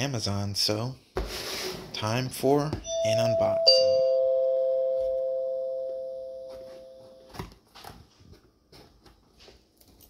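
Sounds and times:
two-note ding-dong chime: 2.8s - 7.3s.

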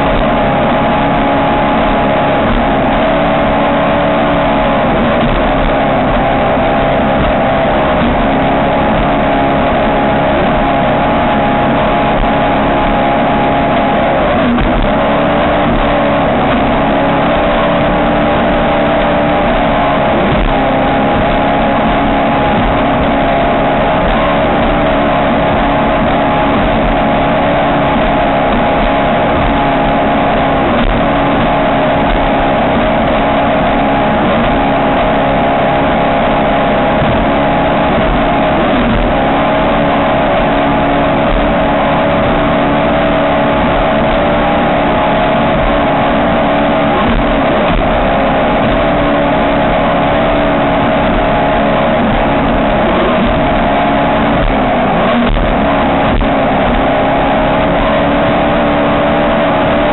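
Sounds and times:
boat engine running: 0.0s - 59.9s
dense rushing noise: 0.0s - 59.9s.

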